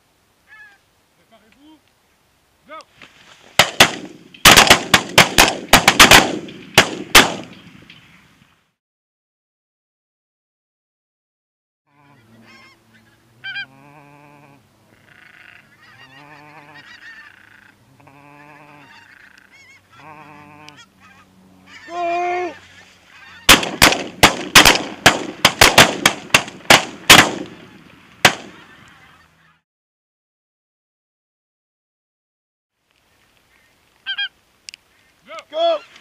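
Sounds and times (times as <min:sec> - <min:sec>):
geese honking: 0:00.5 - 0:00.8, 0:11.9 - 0:23.9, 0:28.5 - 0:29.6, 0:33.5 - 0:34.4
shotgun shots: 0:03.6 - 0:07.9, 0:23.5 - 0:28.6.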